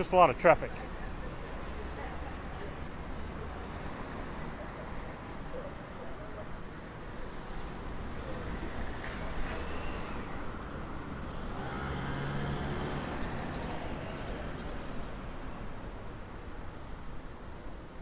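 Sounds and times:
cars driving past: 0:06.7 - 0:17.3.

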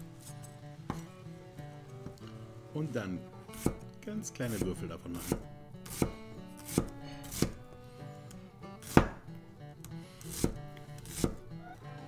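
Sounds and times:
knife striking cutting board: 0:03.6 - 0:03.8, 0:04.5 - 0:07.6, 0:08.8 - 0:09.3, 0:10.3 - 0:11.4.

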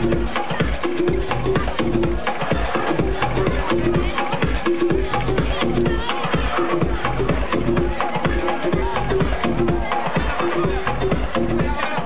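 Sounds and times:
electronic dance music: 0:00.0 - 0:12.0
steady kick drum: 0:00.0 - 0:12.0.

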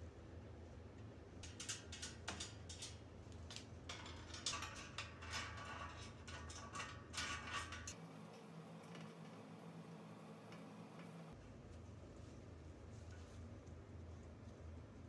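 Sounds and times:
small metal parts clicking: 0:01.4 - 0:08.0.

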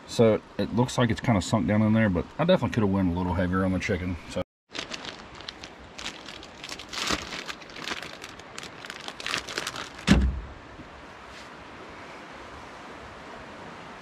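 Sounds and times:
plastic wrapper crinkling: 0:04.7 - 0:10.1
stream rushing: 0:05.2 - 0:14.0
pack thumping on tailgate: 0:10.0 - 0:10.5.

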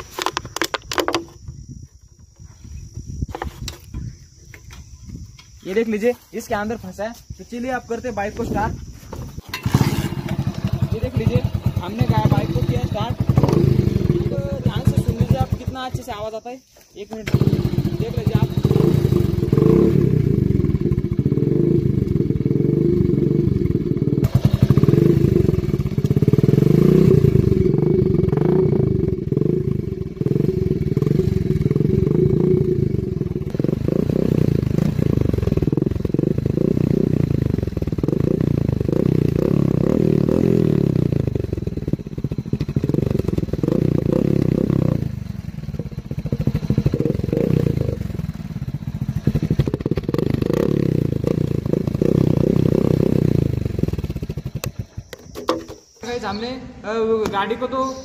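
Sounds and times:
motorcycle engine running: 0:08.0 - 0:16.4, 0:17.2 - 0:56.3.

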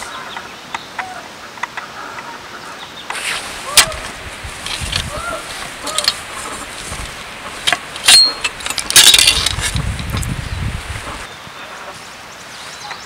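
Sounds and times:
small metal tools clinking: 0:08.0 - 0:09.7.

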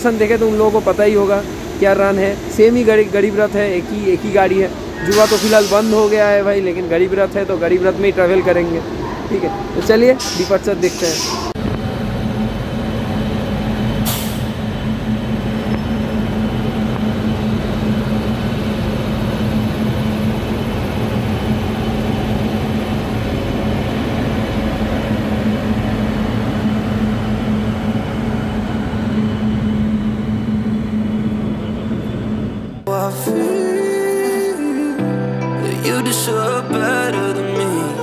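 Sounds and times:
train running rumble: 0:00.0 - 0:32.9
brief hiss: 0:05.1 - 0:06.3.

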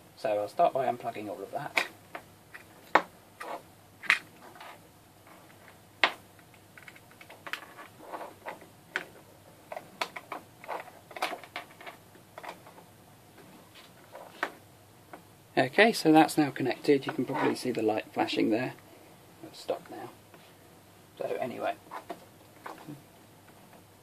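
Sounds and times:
plastic cable clatter: 0:09.7 - 0:12.8.

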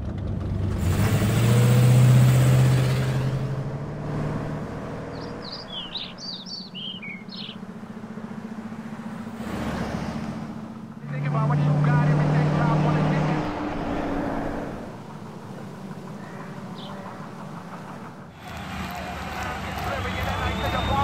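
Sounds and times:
car engine driving past: 0:00.0 - 0:21.0
faint passing vehicle noise: 0:00.8 - 0:21.0
birds chirping: 0:04.2 - 0:21.0.

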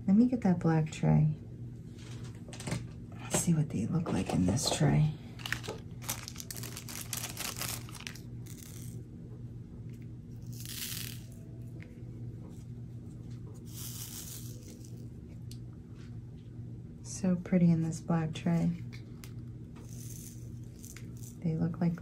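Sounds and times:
steady low hum: 0:00.0 - 0:22.0
tiny beads pouring into tray: 0:10.5 - 0:11.4, 0:13.7 - 0:14.9, 0:19.9 - 0:21.4.

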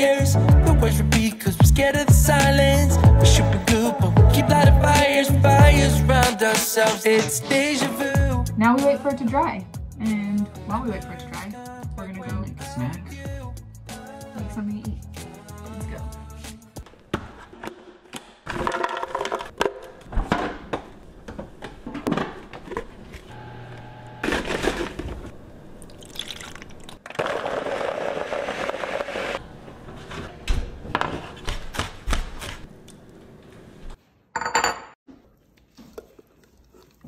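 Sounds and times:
blender running: 0:23.3 - 0:25.1, 0:27.1 - 0:29.4.

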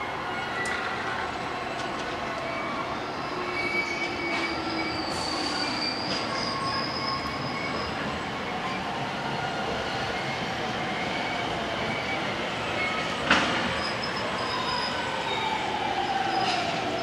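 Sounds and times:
train pulling into station: 0:00.0 - 0:17.0
high squeal of wheels and brakes: 0:01.7 - 0:09.1, 0:09.8 - 0:17.0.

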